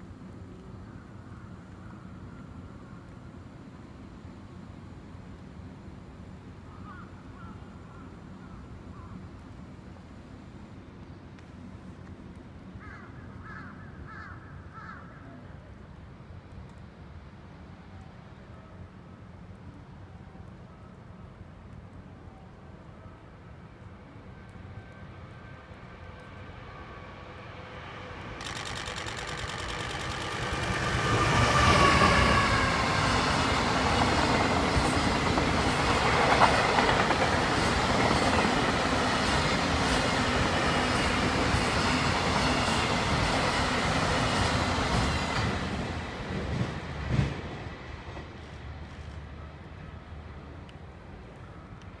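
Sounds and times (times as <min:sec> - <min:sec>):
electric locomotive whine: 0:17.2 - 0:52.0
wagon wheels clattering over rails: 0:28.4 - 0:31.4.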